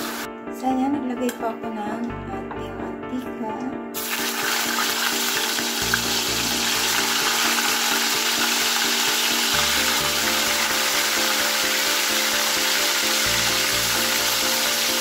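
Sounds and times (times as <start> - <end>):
chicken sizzling in hot oil: 0.0 - 0.3, 4.0 - 15.0
background music: 0.0 - 15.0.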